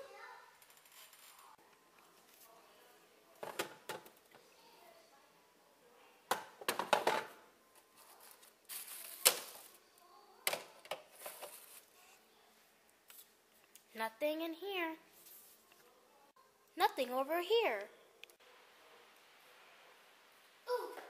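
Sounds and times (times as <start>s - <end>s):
food containers knocking and clattering: 6.3s - 7.4s.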